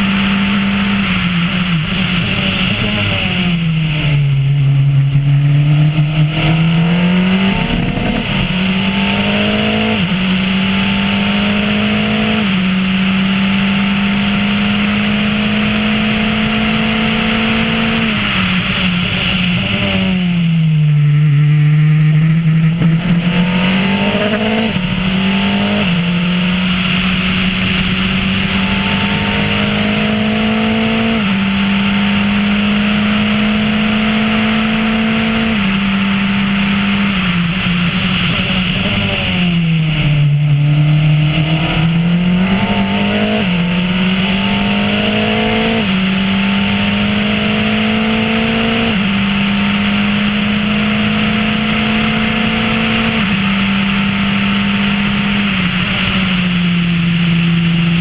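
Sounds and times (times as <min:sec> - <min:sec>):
race car engine shifting gears: 0:05.8 - 0:12.6.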